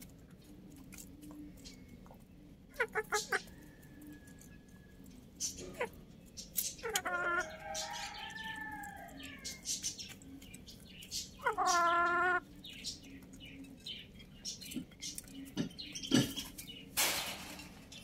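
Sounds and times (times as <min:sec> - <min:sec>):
beaks pecking at grain: 0:00.0 - 0:17.0
chicken calling: 0:02.7 - 0:06.1, 0:06.7 - 0:10.2, 0:11.3 - 0:12.6
rooster crowing: 0:07.4 - 0:09.6.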